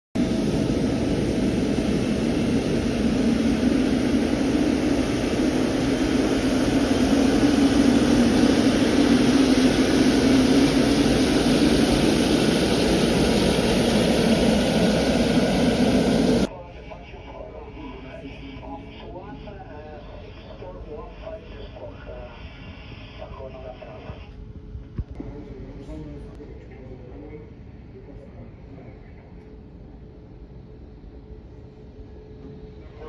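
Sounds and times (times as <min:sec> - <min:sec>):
jet engines roaring: 0:00.2 - 0:23.9.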